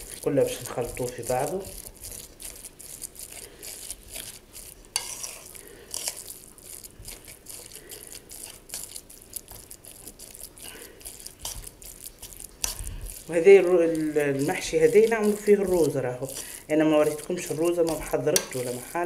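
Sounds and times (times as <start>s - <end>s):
spoon stirring wet mixture: 0.0s - 19.0s.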